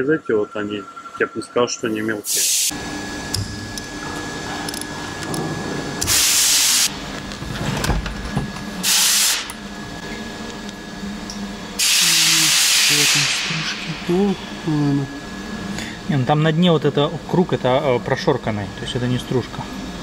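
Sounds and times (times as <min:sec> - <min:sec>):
pressurised spray hissing: 0:02.2 - 0:02.7, 0:11.8 - 0:13.6.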